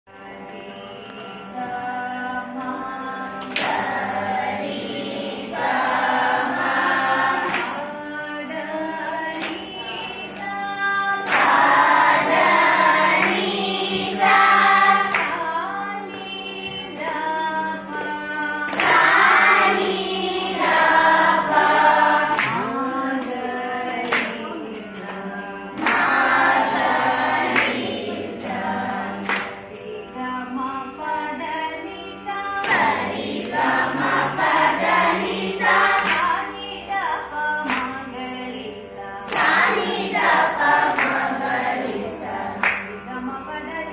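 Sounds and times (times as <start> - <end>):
children and woman singing: 0.1 - 43.9
hands clapping the beat: 3.4 - 4.0, 5.6 - 8.0, 9.3 - 10.6, 11.2 - 15.5, 18.6 - 30.2, 32.6 - 36.5, 37.6 - 38.1, 39.2 - 43.2.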